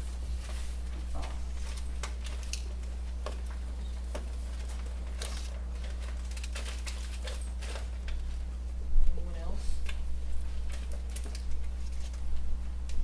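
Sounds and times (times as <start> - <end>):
people shifting in chairs: 0.0 - 8.6
papers rustling: 0.0 - 8.7, 9.8 - 13.0
low room hum: 0.0 - 13.0.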